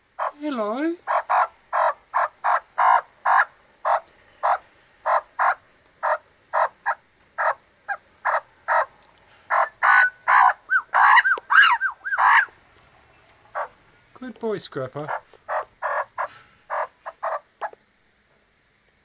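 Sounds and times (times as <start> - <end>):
magpie squawking and warbling: 0.2 - 8.9, 9.5 - 12.5, 13.5 - 13.8, 15.0 - 17.8.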